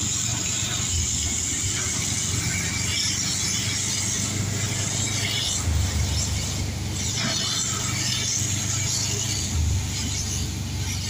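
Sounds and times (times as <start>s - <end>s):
vehicle engine rumble: 0.0s - 11.0s
rain hissing: 0.1s - 11.0s.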